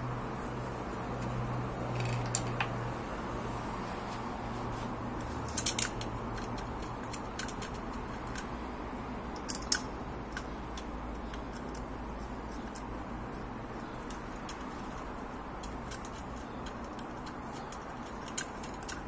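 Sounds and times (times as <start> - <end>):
steady low hum: 0.0 - 19.0
metal parts clicking and clinking: 1.9 - 2.7, 5.2 - 8.5, 9.3 - 19.0.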